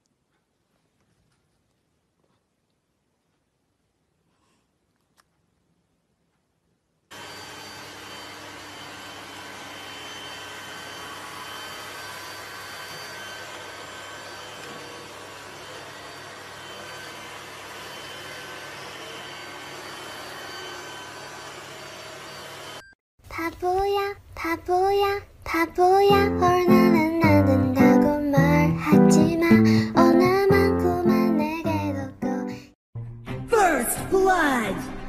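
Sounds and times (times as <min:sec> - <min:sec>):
robot vacuum cleaner whirring: 0:07.1 - 0:22.9.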